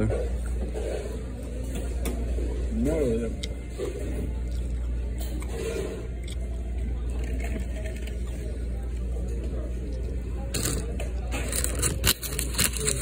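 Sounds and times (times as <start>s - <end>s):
paper bag crinkling: 10.6s - 13.0s.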